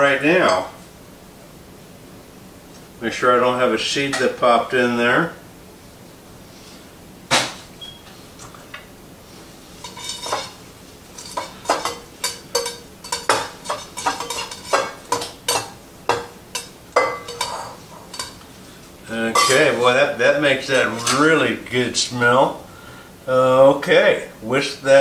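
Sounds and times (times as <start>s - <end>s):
metal utensil clinking on a bowl: 9.8s - 10.6s, 11.2s - 18.4s, 19.3s - 19.8s, 20.8s - 21.3s.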